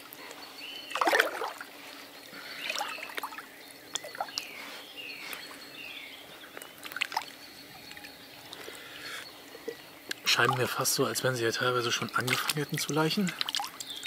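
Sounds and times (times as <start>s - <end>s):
birds whistling calls: 0.0s - 14.0s.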